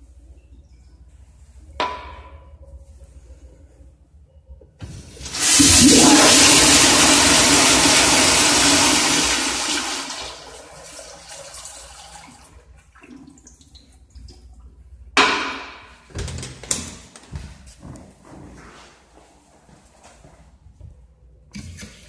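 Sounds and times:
toilet flush water rushing: 0:05.0 - 0:13.4.

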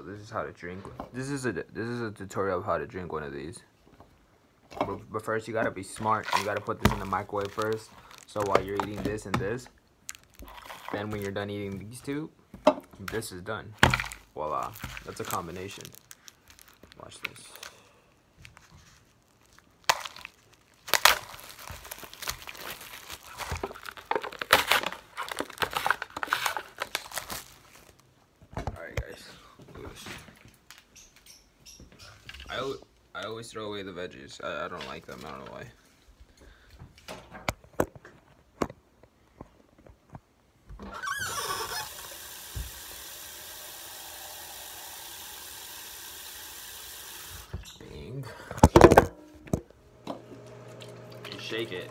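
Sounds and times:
plastic wrap tearing and crinkling: 0:05.8 - 0:12.1, 0:13.0 - 0:28.2
faucet squealing: 0:40.9 - 0:45.2
water running from tap: 0:41.7 - 0:47.5, 0:50.4 - 0:51.9.

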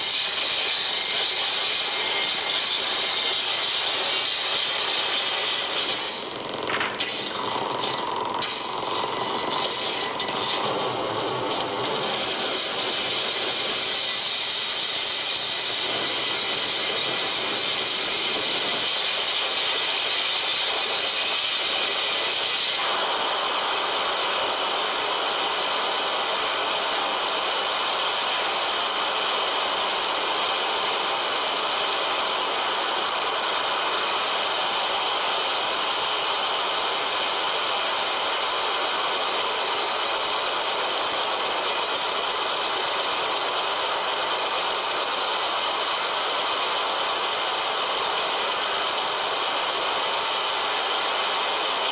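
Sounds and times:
harsh electronic noise: 0:00.0 - 0:25.6.

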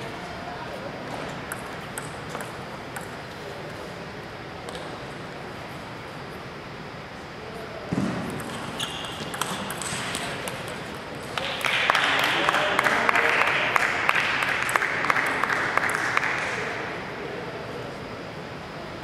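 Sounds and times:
table tennis ball clicking: 0:01.5 - 0:03.2, 0:08.3 - 0:11.0
spectators clapping: 0:11.2 - 0:16.9.

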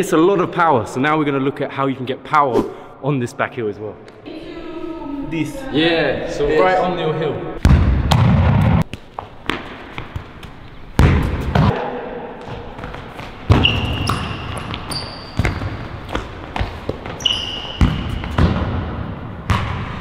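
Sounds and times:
shoes squeaking on court: 0:12.5 - 0:18.6.

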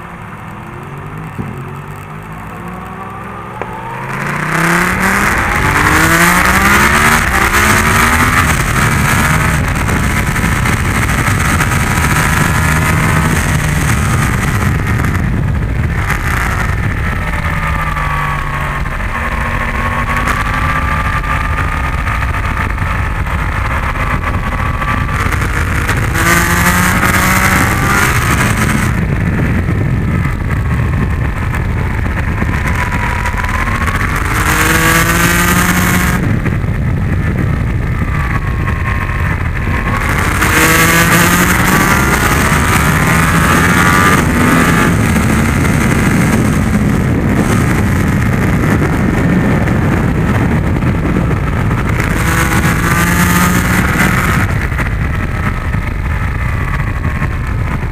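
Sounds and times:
motorcycle engine accelerating: 0:00.0 - 0:57.9
wind rush over microphone: 0:01.2 - 0:57.9.

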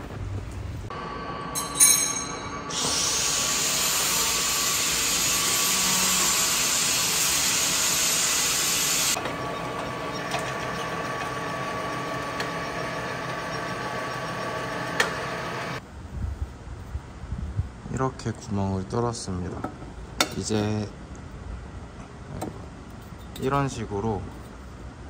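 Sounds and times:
machine whine: 0:00.9 - 0:15.8
milling machine cutting metal: 0:02.5 - 0:15.8.

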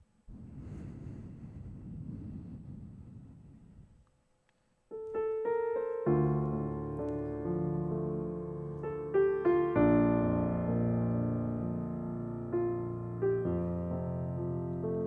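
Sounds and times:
piano chords and notes: 0:04.9 - 0:15.0.

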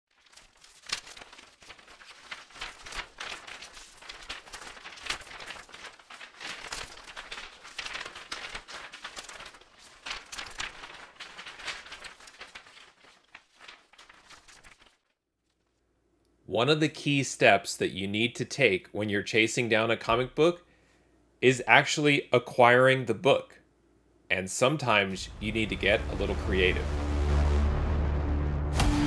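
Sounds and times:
crinkling rustling with crackles: 0:00.1 - 0:15.9.

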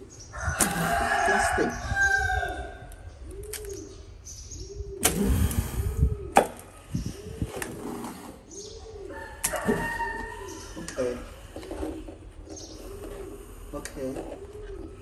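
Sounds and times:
dove cooing: 0:00.7 - 0:15.0.

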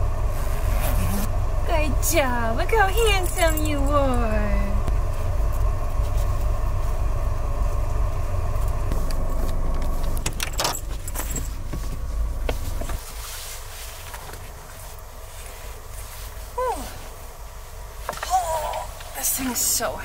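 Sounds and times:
car engine idling: 0:00.0 - 0:20.0
rattles and clicks: 0:08.6 - 0:13.0.

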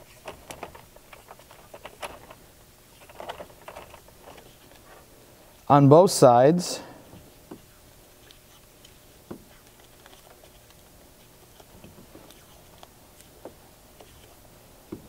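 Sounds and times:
tape crackling and ticking: 0:00.0 - 0:05.1.

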